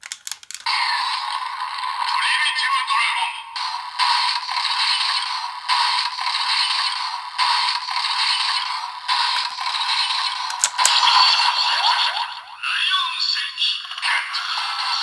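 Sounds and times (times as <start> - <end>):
plastic clicks: 0.0 - 0.7, 10.5 - 11.0
toy looping electronic sound effect: 4.0 - 12.6.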